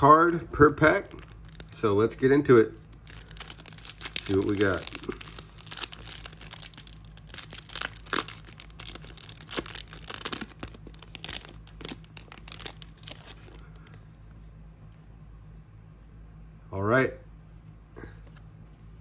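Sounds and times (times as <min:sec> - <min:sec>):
foil pack ripping and crinkling: 0:00.0 - 0:01.9, 0:02.8 - 0:13.9.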